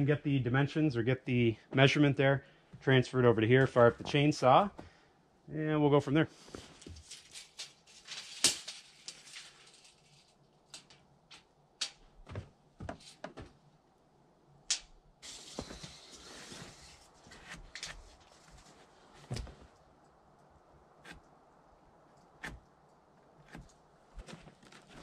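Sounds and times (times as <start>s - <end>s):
rustling noise: 6.3s - 13.7s, 15.2s - 20.1s, 23.4s - 25.0s.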